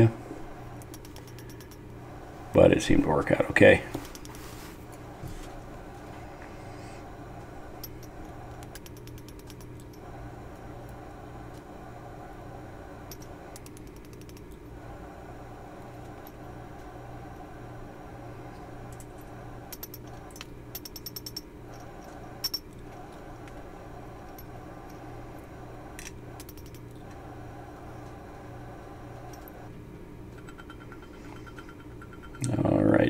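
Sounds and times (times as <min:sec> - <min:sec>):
mechanical hum: 0:00.0 - 0:33.0
sharp clicks: 0:00.8 - 0:01.8, 0:08.6 - 0:10.0.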